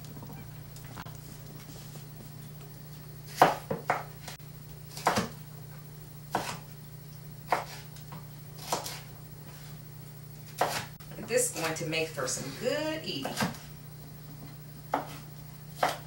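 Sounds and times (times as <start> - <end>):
steady low hum: 0.0 - 16.0
knife cutting on wooden board: 7.5 - 7.9, 8.6 - 9.0, 10.5 - 10.9.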